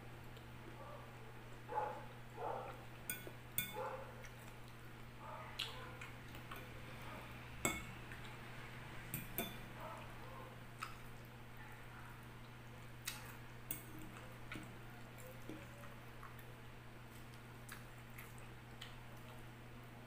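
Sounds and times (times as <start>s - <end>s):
fork clinking against glass bowl: 3.1s - 3.8s, 7.6s - 7.9s, 9.1s - 9.6s.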